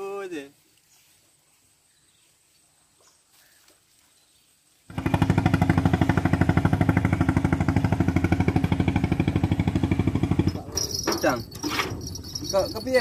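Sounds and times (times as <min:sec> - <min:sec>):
boat engine running: 0:04.9 - 0:13.0.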